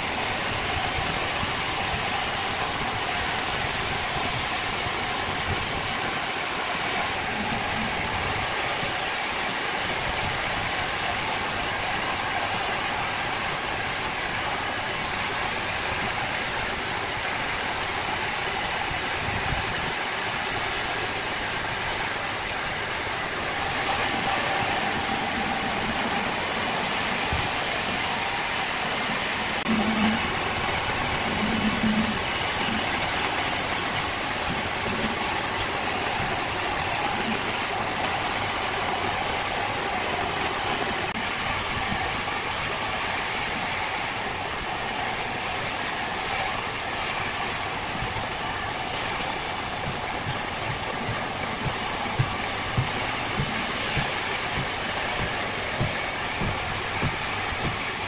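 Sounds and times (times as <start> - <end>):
engine running: 47.4 - 58.0
short knocks: 49.8 - 57.8.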